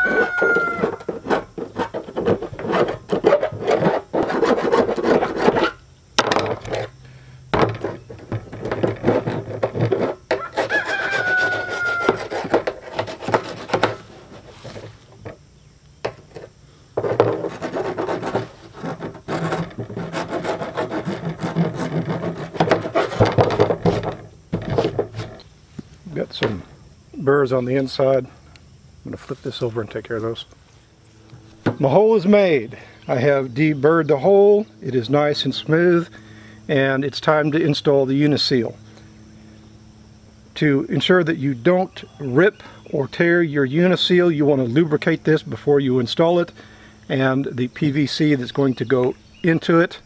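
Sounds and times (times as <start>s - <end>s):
metal file rasping on plastic: 0.0s - 5.8s, 7.8s - 14.8s, 17.0s - 25.4s.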